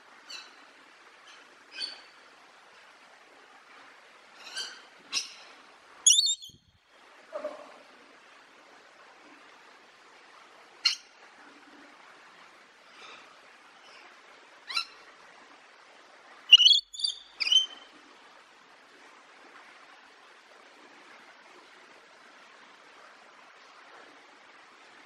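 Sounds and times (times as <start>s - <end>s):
faint steady outdoor hiss: 0.0s - 25.0s
bird calls: 6.1s - 6.6s, 16.5s - 17.9s.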